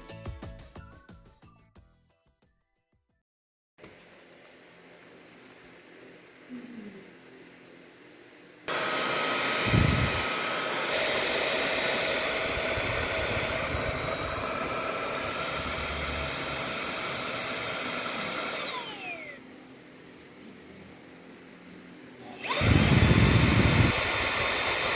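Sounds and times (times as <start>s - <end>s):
vacuum motor whining: 8.7s - 19.5s, 22.2s - 24.9s.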